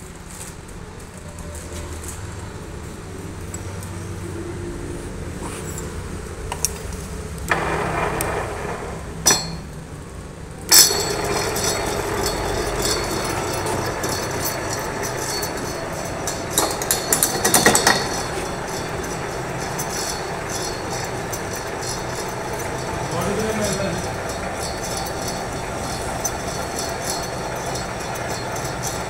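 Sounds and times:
lathe running: 7.5 - 9.8, 10.7 - 29.0
metal clinks: 9.2 - 9.7, 10.7 - 29.0.

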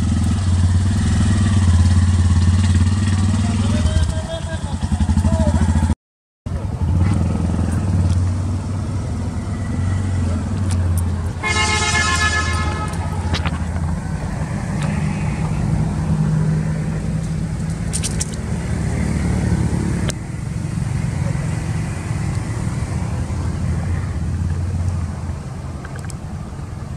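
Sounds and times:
vehicle horn: 11.4 - 13.5.

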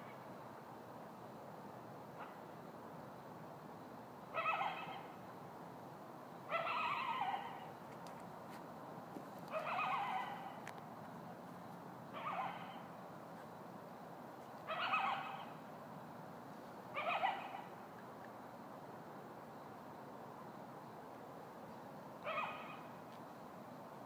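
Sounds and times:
coyote howling: 4.3 - 5.2, 6.5 - 7.7, 9.5 - 10.6, 12.1 - 12.9, 14.6 - 15.6, 16.9 - 17.8, 22.2 - 22.9.

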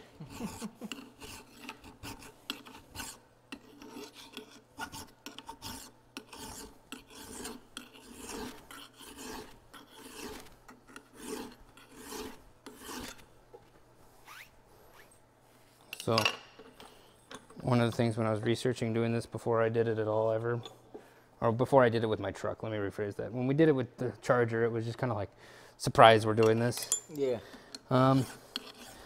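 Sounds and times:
file rasping on metal: 0.2 - 13.3, 27.9 - 29.0.

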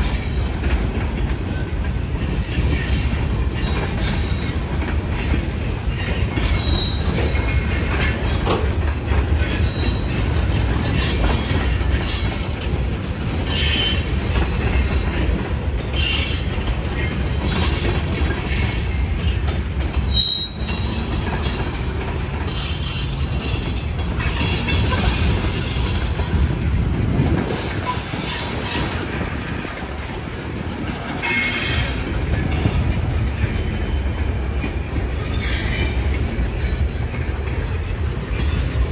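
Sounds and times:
steel wheels rumbling on rail: 0.0 - 38.9
high-pitched wheel squeals: 20.1 - 21.7, 35.3 - 36.3.

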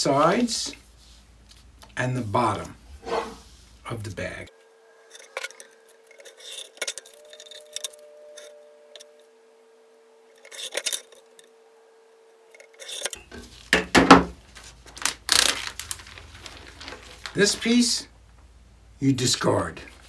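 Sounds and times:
metallic clatter: 5.1 - 9.1.

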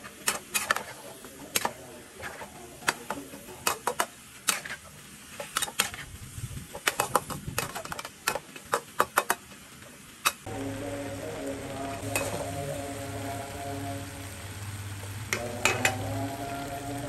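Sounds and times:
metal spatula scraping a wok: 0.0 - 6.1, 12.0 - 12.8, 15.6 - 16.1
low sizzle: 0.0 - 17.0.

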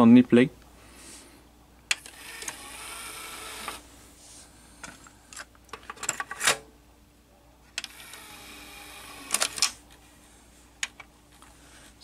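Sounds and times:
cassette deck mechanism whirr: 1.9 - 3.9, 7.7 - 9.8
mechanical clicks: 9.0 - 9.8.

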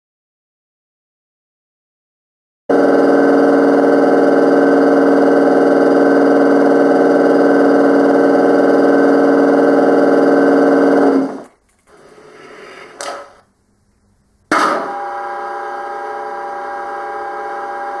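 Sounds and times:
electric locomotive hum: 2.7 - 13.5, 14.5 - 18.0.

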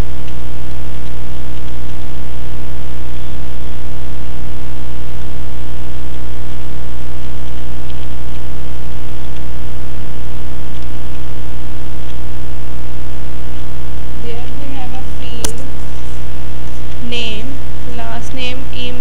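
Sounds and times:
loud electrical hum: 0.0 - 19.0.

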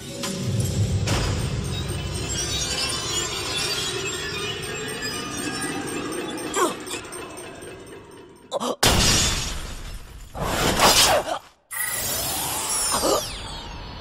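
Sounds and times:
background music: 0.0 - 8.5.

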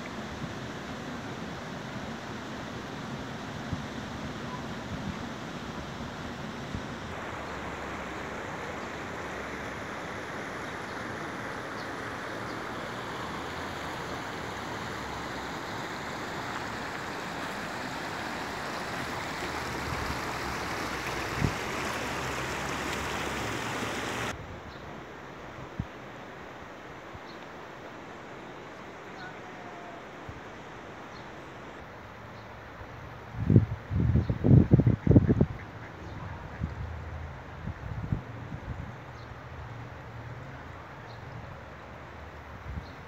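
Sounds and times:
river rushing over stones: 5.2 - 24.4.

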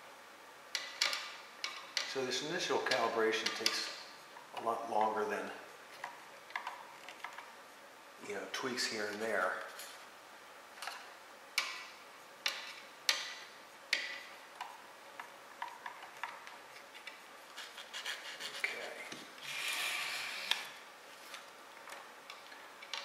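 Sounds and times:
paper rubbing: 17.5 - 21.3.

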